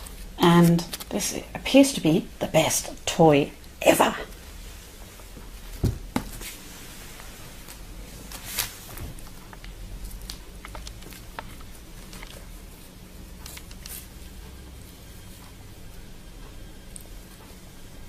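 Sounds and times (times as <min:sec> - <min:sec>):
plastic bag crinkling: 0:08.3 - 0:12.6.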